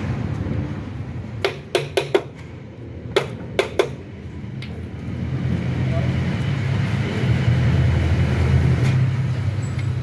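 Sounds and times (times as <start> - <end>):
sharp taps and knocks of tool: 1.4 - 2.5, 3.1 - 4.0.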